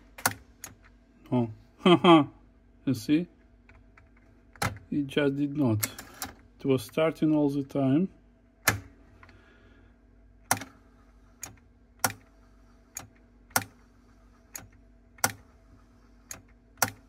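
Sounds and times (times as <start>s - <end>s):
cassette deck mechanical clicks: 0.0s - 0.9s, 8.6s - 9.0s, 10.5s - 10.8s, 16.3s - 17.0s
faint steady hum: 0.0s - 17.0s.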